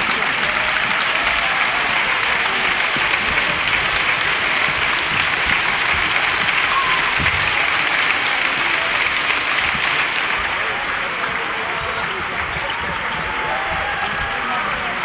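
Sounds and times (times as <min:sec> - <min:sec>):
audience applause: 0:00.0 - 0:15.0.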